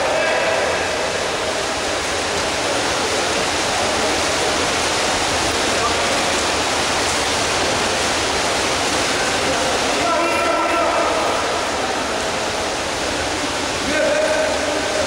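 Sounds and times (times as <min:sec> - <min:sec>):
water churning and splashing: 0:00.0 - 0:15.0.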